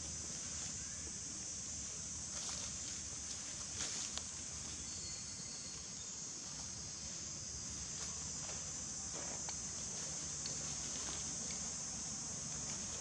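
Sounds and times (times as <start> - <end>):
insects droning: 0.0 - 13.0
dry leaves rustling: 9.7 - 11.5.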